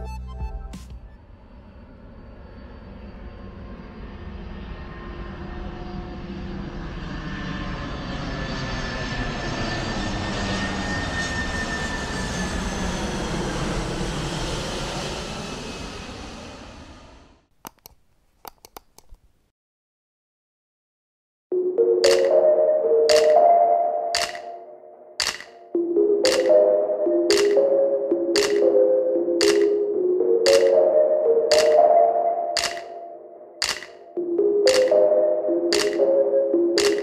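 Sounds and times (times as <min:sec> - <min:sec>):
jet engines roaring overhead: 0:01.2 - 0:17.4, 0:24.1 - 0:37.0
sharp clicks: 0:17.6 - 0:19.2, 0:22.0 - 0:22.4, 0:23.1 - 0:23.4, 0:24.2 - 0:24.6, 0:25.2 - 0:26.6, 0:27.3 - 0:27.7, 0:28.3 - 0:28.8, 0:29.4 - 0:29.8, 0:30.5 - 0:30.8, 0:31.5 - 0:31.9, 0:32.6 - 0:33.0, 0:33.6 - 0:35.1, 0:35.7 - 0:36.1, 0:36.8 - 0:37.0.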